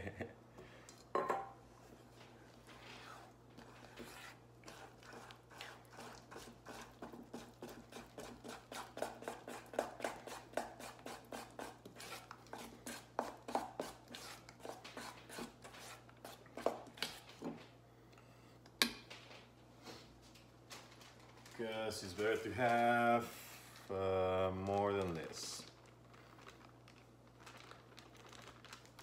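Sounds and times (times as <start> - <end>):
utensil stirring icing in metal bowl: 2.5 - 17.4, 23.9 - 29.0.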